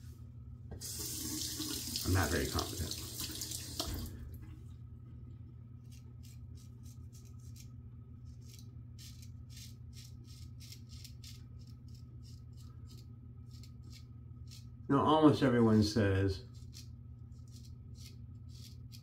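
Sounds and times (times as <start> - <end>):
steady low hum: 0.0 - 19.0
razor scraping stubble: 5.8 - 14.8, 16.5 - 19.0.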